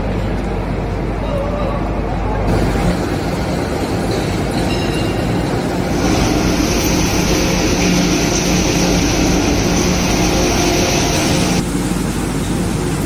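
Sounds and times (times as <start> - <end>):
hammer mill droning: 1.8 - 13.0
harsh high hiss: 5.8 - 11.6.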